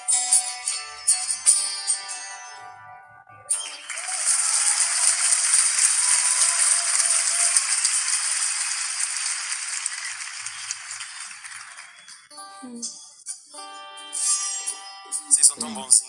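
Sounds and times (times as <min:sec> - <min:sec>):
audience applauding: 0:03.8 - 0:12.3.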